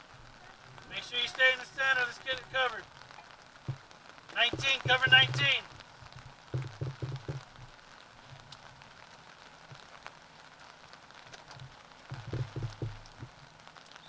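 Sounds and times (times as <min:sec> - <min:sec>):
steady outdoor hiss: 0:00.0 - 0:14.0.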